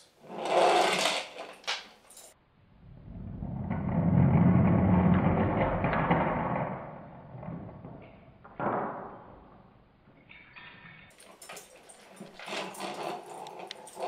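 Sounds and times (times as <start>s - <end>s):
toy carriage rolling: 0.2s - 2.4s, 11.1s - 14.0s.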